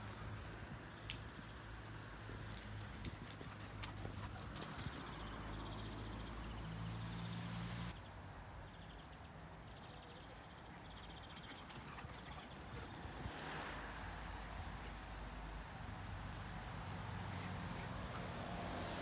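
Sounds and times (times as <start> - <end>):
puppies scuffling on grass: 0.0 - 5.4, 14.3 - 19.0.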